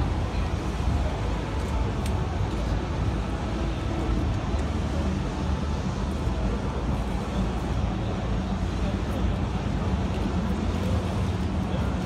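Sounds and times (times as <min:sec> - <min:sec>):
indistinct crowd chatter: 0:00.0 - 0:12.0.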